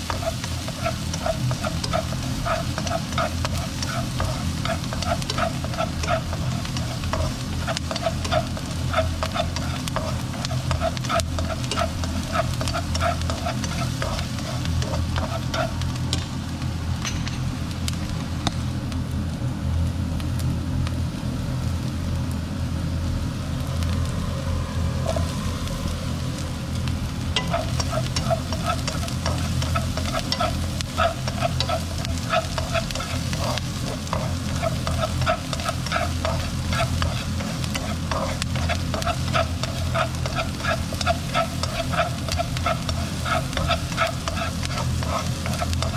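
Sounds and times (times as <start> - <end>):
chopsticks stirring and scraping: 0.0 - 16.4, 25.0 - 25.4, 27.3 - 45.9
onions sizzling in oil: 0.0 - 45.9
steady low hum: 0.0 - 45.9.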